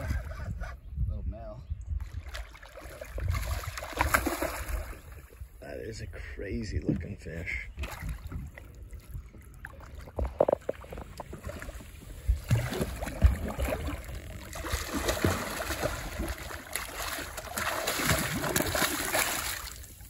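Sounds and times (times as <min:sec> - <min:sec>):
fish thrashing and splashing water: 0:02.1 - 0:05.1, 0:09.7 - 0:20.0.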